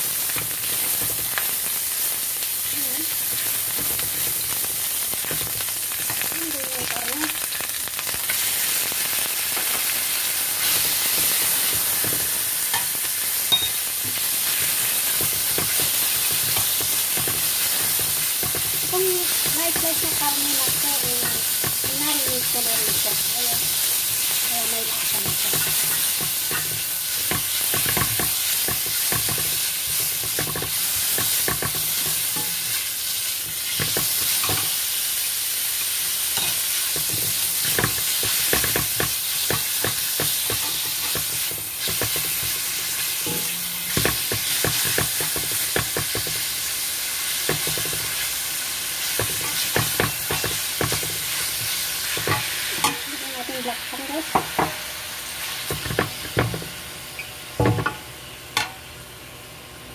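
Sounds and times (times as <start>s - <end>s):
meat sizzling in hot oil: 0.0s - 59.9s
spatula scraping and tapping pan: 10.6s - 32.8s, 33.4s - 34.8s, 36.4s - 46.5s, 47.4s - 48.2s, 49.0s - 53.0s, 55.7s - 56.7s.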